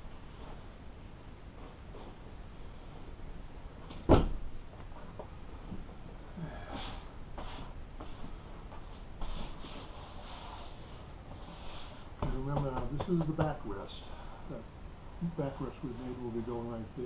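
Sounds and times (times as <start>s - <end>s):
thump: 4.0s - 4.5s
hands sweeping vinyl sheet: 6.8s - 14.0s, 15.2s - 17.0s.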